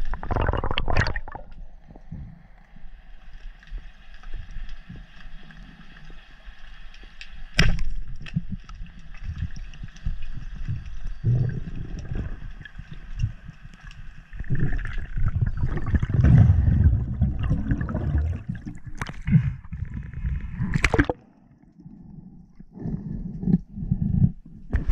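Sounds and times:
water sloshing and rushing: 0:03.1 - 0:21.5.

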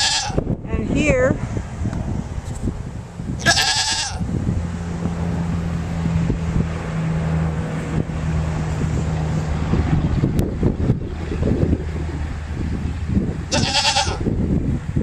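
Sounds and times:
goat bleating: 0:00.0 - 0:00.4, 0:03.4 - 0:04.2, 0:13.5 - 0:14.2
wind on microphone: 0:00.0 - 0:15.0.

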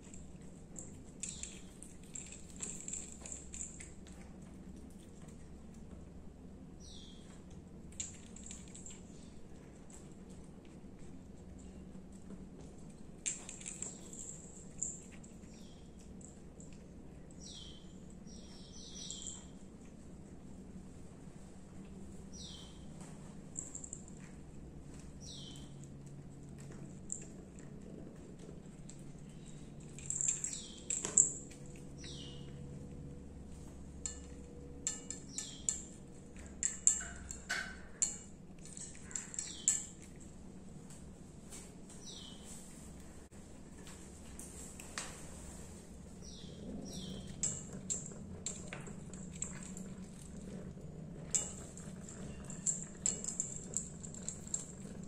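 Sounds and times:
cat collar bell jingling: 0:00.0 - 0:04.0, 0:47.0 - 0:55.0
cat chewing and licking: 0:00.0 - 0:06.7, 0:07.4 - 0:17.5, 0:23.4 - 0:41.1, 0:45.6 - 0:55.0
bird chirping: 0:06.8 - 0:07.4, 0:17.4 - 0:19.6, 0:22.3 - 0:22.9, 0:25.2 - 0:25.8, 0:32.0 - 0:32.6, 0:46.2 - 0:47.6.

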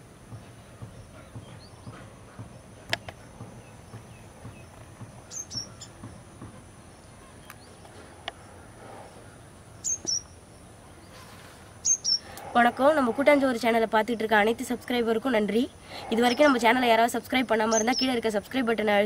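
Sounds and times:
small bird chirps: 0:03.0 - 0:06.0, 0:09.8 - 0:10.4, 0:11.8 - 0:12.4, 0:17.5 - 0:18.2.

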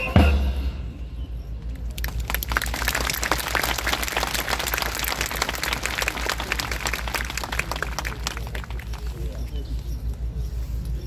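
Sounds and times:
low steady rumble: 0:00.0 - 0:11.0
crowd applauding: 0:01.9 - 0:09.6.

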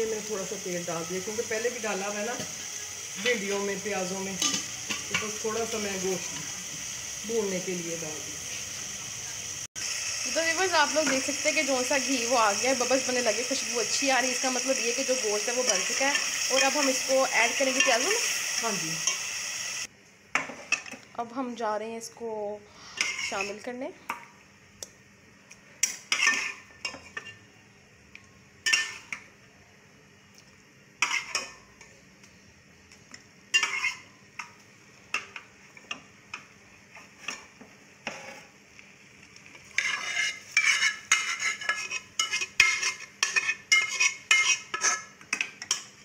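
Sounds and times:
metal spatula scraping pot: 0:12.2 - 0:18.3, 0:22.9 - 0:23.7, 0:25.8 - 0:27.4, 0:31.0 - 0:31.6, 0:33.5 - 0:34.1, 0:37.0 - 0:38.5, 0:39.7 - 0:45.9.

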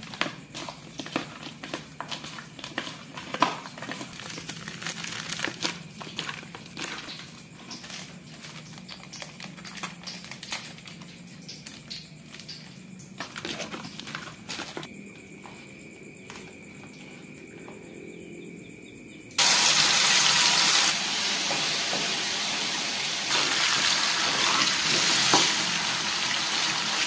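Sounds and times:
foil sachets crinkling and tearing: 0:00.9 - 0:12.6, 0:13.2 - 0:14.9.

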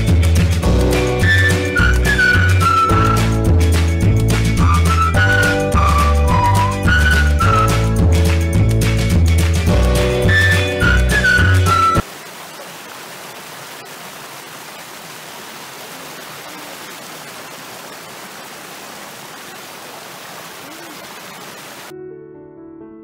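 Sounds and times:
piano music: 0:00.6 - 0:12.0, 0:21.9 - 0:23.0
creek water rushing over rocks: 0:11.2 - 0:21.9.

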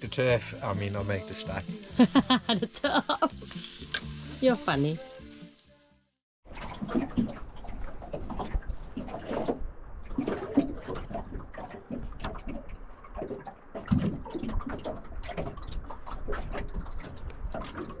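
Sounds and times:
water slapping against boat hull: 0:06.5 - 0:18.0.

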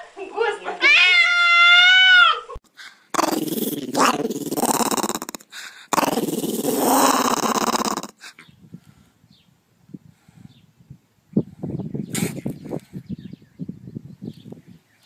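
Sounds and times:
dog growling: 0:03.1 - 0:08.4.

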